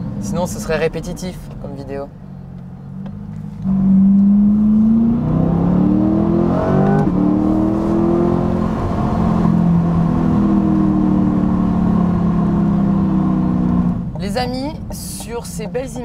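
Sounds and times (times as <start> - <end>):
car engine accelerating hard: 2.6 - 14.1.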